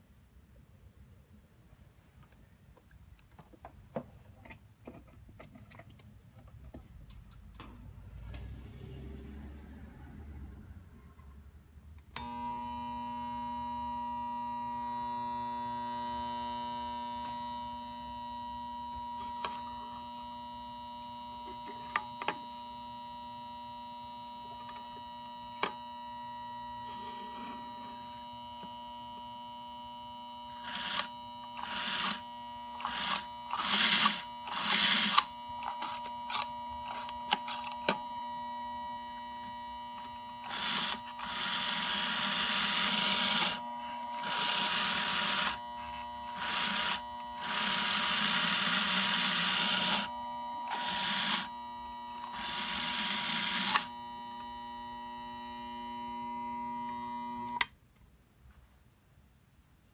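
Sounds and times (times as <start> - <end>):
small electric motor whirring: 12.2 - 57.6.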